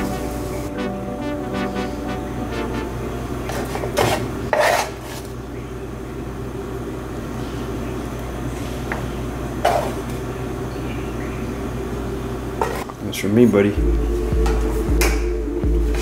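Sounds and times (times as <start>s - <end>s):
steady low hum: 0.0s - 4.6s, 5.2s - 16.0s.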